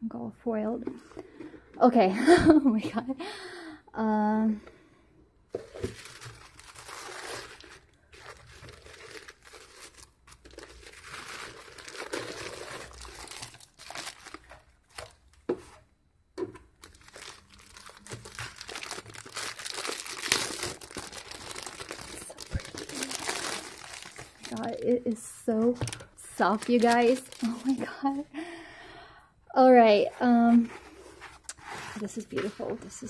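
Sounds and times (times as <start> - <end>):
tissue paper and plastic crinkling: 5.6 - 15.8, 16.8 - 28.3.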